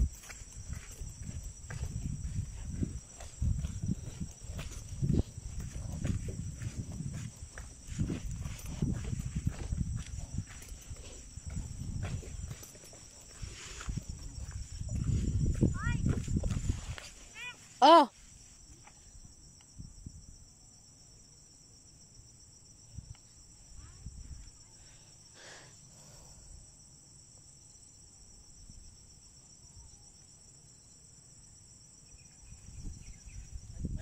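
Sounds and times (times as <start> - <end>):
soft low thumps: 0.0 - 12.7
insects droning: 0.0 - 34.0.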